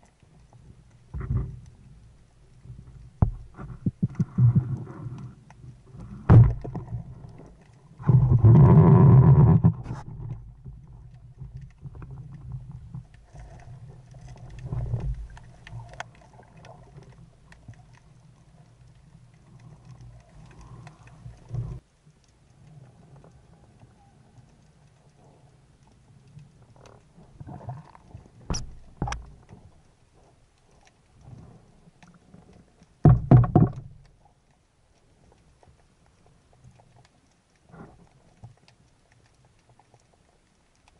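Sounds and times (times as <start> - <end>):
muffled underwater knocks: 3.2 - 4.2, 6.2 - 6.9, 33.0 - 34.0.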